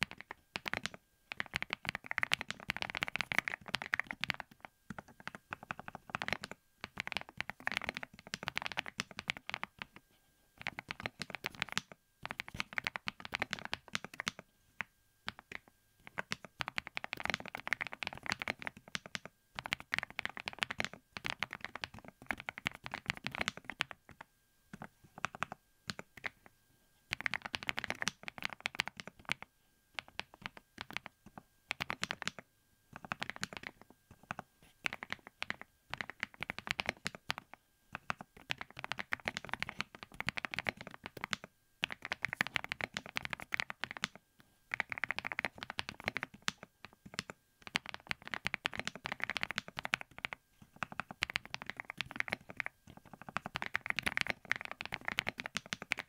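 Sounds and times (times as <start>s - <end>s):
fast typing on mechanical keyboard: 0.0s - 10.0s, 10.6s - 14.4s, 15.3s - 24.2s, 24.8s - 26.4s, 27.1s - 32.4s, 33.0s - 56.0s.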